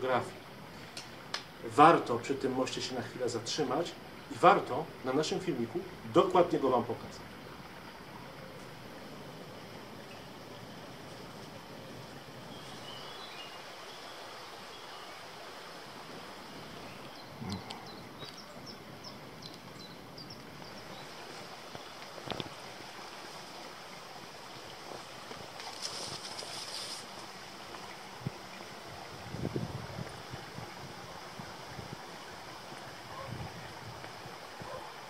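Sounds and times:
outdoor background noise: 0:00.0 - 0:35.0
brief rustle: 0:25.6 - 0:27.3.

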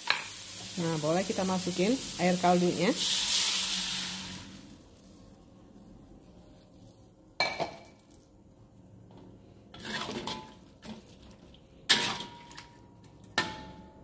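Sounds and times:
metal spatula scraping a wok: 0:09.7 - 0:10.3.

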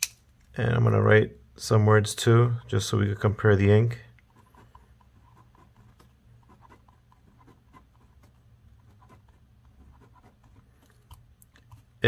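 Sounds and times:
pen scratching on paper: 0:04.3 - 0:11.2.

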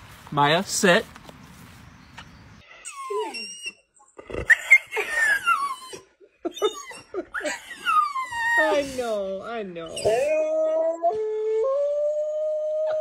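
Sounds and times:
dog whining: 0:02.8 - 0:09.0, 0:09.8 - 0:11.8.

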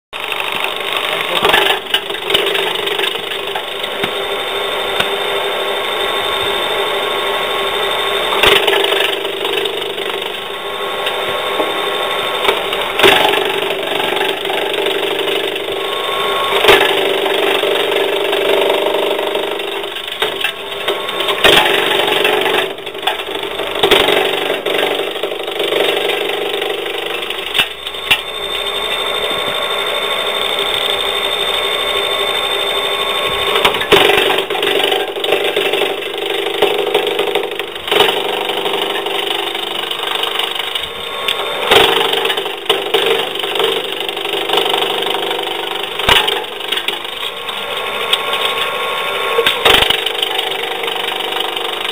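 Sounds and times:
sharp wood cracks: 0:00.2 - 0:04.2, 0:08.4 - 0:11.3, 0:12.4 - 0:15.9, 0:16.6 - 0:28.3, 0:33.6 - 0:48.7, 0:49.4 - 0:51.9
wood crackling and splintering: 0:00.2 - 0:05.2, 0:08.3 - 0:29.8, 0:33.5 - 0:51.9
branch chipper whirring: 0:00.2 - 0:51.9.

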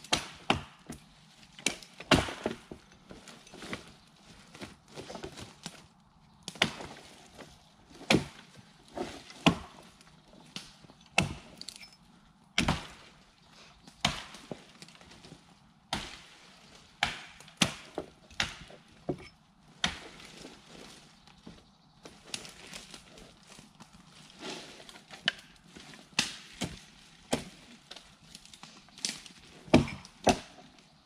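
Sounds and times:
axe chopping wood: 0:00.0 - 0:01.0, 0:01.6 - 0:02.8, 0:06.5 - 0:07.0, 0:08.0 - 0:08.5, 0:09.3 - 0:09.8, 0:10.6 - 0:11.8, 0:12.6 - 0:13.0, 0:14.0 - 0:14.5, 0:17.0 - 0:18.8, 0:19.8 - 0:20.2, 0:26.1 - 0:27.6, 0:29.7 - 0:30.6.

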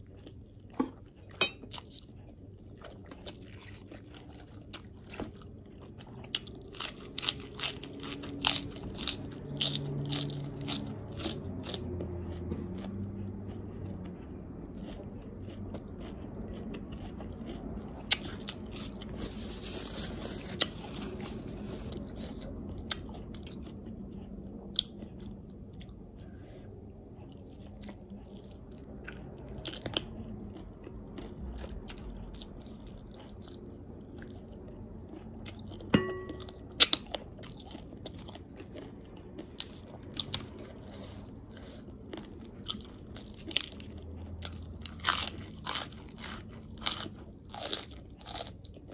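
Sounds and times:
crunching bites of lettuce: 0:06.1 - 0:13.0, 0:36.8 - 0:48.9.

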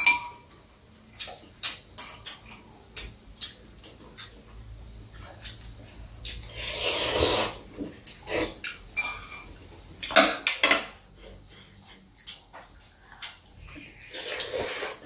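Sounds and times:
noodle slurp: 0:06.5 - 0:07.6, 0:14.0 - 0:15.0.

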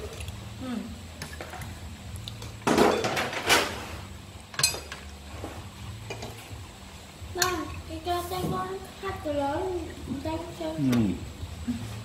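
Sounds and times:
cutlery clinking on ceramic plates: 0:02.7 - 0:03.6, 0:04.6 - 0:05.1.

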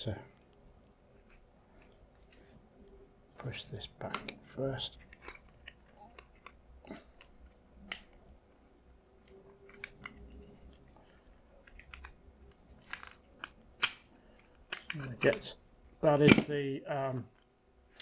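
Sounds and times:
pistol parts clicking: 0:11.6 - 0:15.5.

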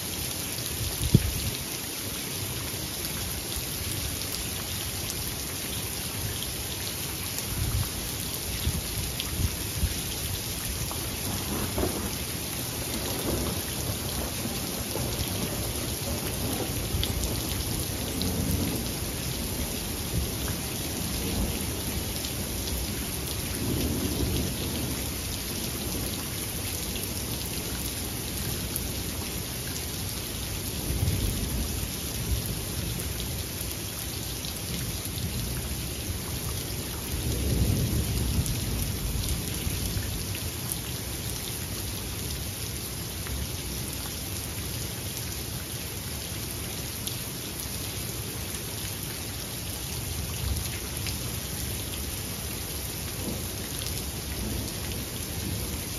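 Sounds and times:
steady rain: 0:00.0 - 0:55.9
thunder rumbling: 0:11.2 - 0:20.3.

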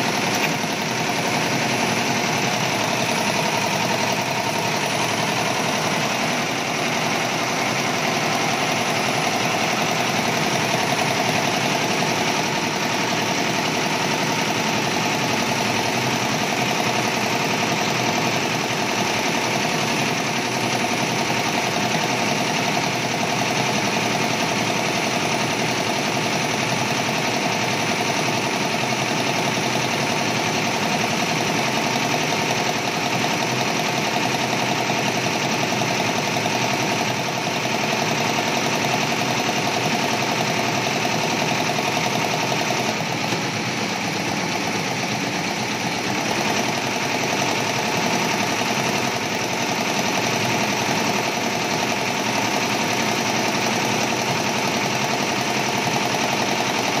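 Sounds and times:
embroidery machine clatter: 0:00.0 - 0:57.0.

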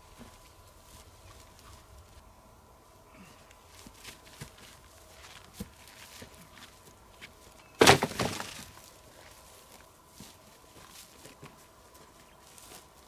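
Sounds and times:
footsteps in dry grass: 0:00.0 - 0:07.6, 0:08.5 - 0:13.0
wood crackling: 0:03.4 - 0:09.9.

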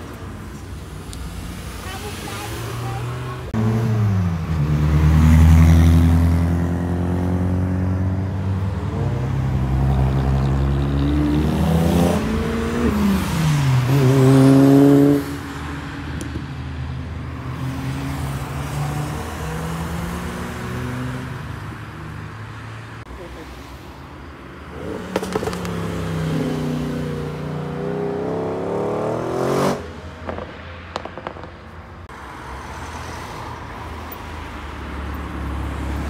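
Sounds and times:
car engines driving past: 0:00.6 - 0:36.0
car accelerating hard: 0:24.8 - 0:30.4.

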